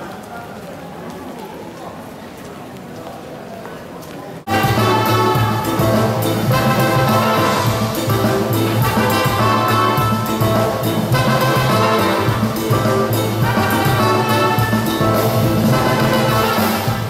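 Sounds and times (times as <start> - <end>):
bass: 4.5 - 17.0
drums: 4.5 - 17.0
saxophone: 4.5 - 17.0
trumpet: 4.5 - 17.0.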